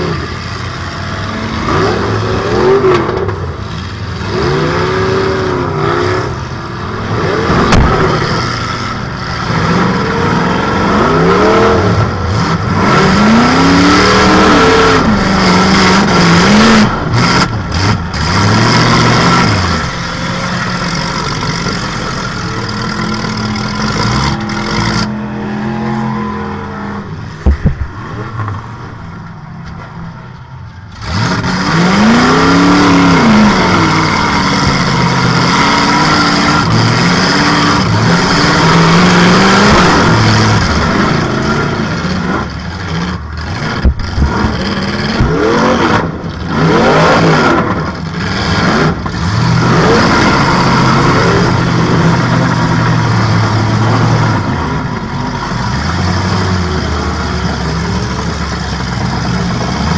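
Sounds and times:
car engine revving: 0.0 - 59.9
sharp bangs: 7.1 - 9.8.

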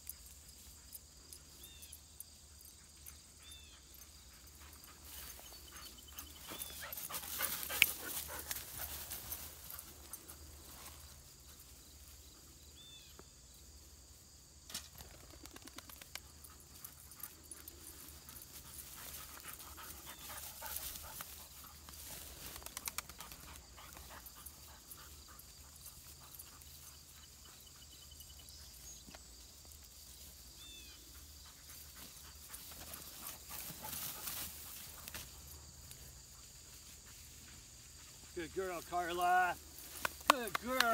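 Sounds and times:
dog panting: 2.6 - 10.3, 16.2 - 21.9, 23.1 - 28.1.

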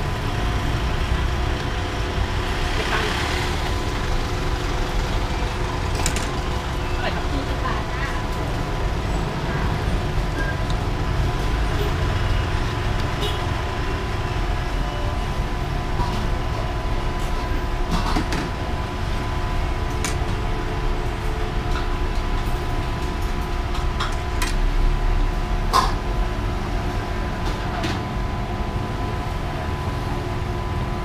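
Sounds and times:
mechanical hum: 0.0 - 31.0
road traffic rumble: 0.0 - 31.0.

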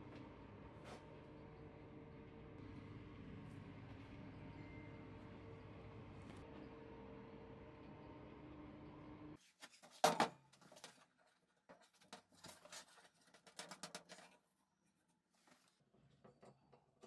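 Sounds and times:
steady hum: 0.0 - 9.4.

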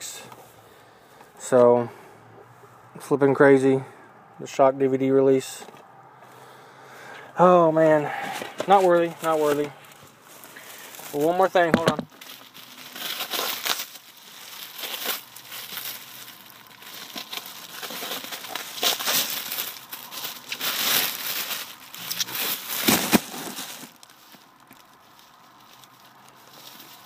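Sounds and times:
bubble wrap crinkling: 8.1 - 27.0.

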